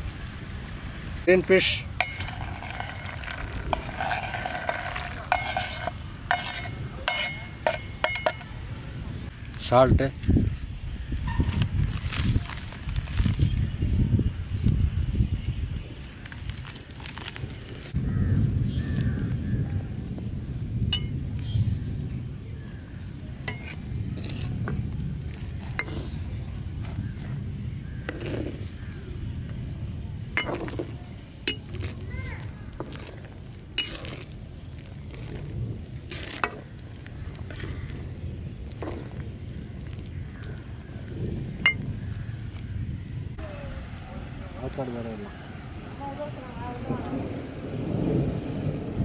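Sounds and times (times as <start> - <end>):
water bubbling in pan: 1.9 - 6.1
ladle scraping wooden board: 2.0 - 8.4, 28.0 - 28.8, 30.4 - 36.7.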